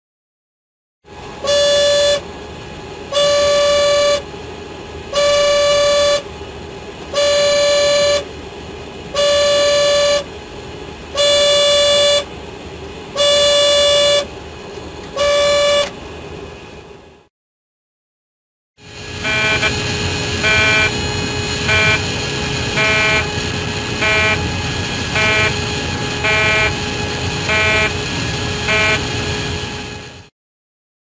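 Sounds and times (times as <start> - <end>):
cockpit warning alarm tone: 1.4 - 2.3, 3.1 - 4.3, 5.1 - 6.3, 7.1 - 8.3, 9.2 - 10.3, 11.1 - 12.3, 13.1 - 14.3, 15.1 - 16.0, 18.8 - 30.3.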